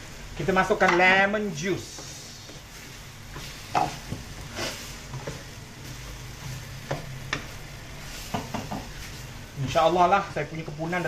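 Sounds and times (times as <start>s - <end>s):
food sizzling softly: 0.0s - 11.0s
spatula scraping a frying pan: 1.9s - 9.4s
spatula knocking against pan: 8.3s - 8.9s.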